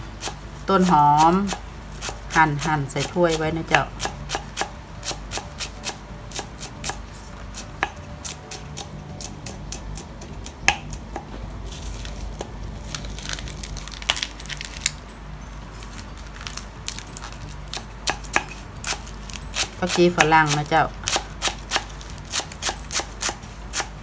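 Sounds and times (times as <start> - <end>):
knife chopping on wooden board: 1.2 - 11.4.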